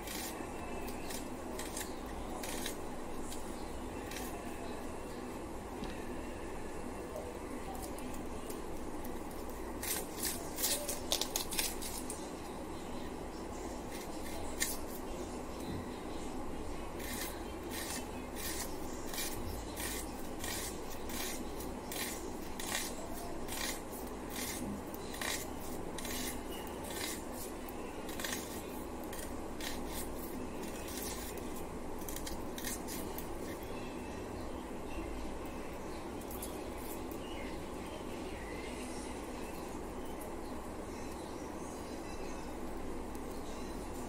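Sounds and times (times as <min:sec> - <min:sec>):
blade cutting vegetable: 0:00.0 - 0:03.4, 0:09.8 - 0:12.2, 0:17.0 - 0:33.6.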